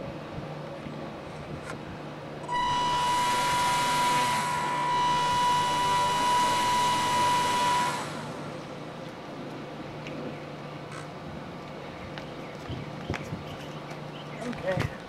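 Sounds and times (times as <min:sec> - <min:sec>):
model airboat propeller whining: 0:02.4 - 0:09.0.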